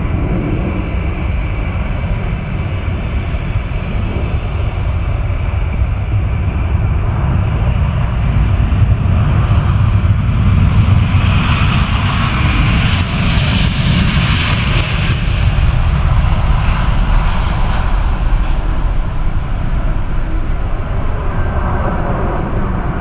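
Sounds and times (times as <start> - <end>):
jet engines deep rumble: 0.0 - 23.0.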